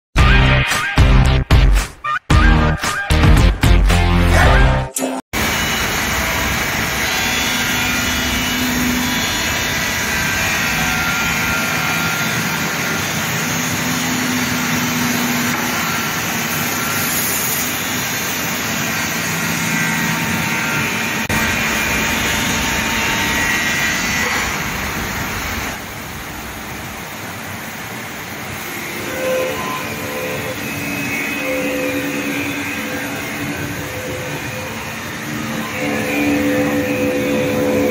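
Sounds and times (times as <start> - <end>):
glass grinding machine whirring: 5.4 - 25.8, 28.4 - 37.9.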